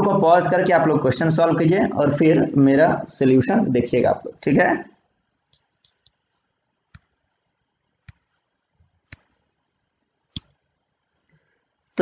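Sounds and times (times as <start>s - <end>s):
sharp mouse clicks: 5.5s - 6.2s, 6.9s - 7.2s, 10.3s - 10.6s.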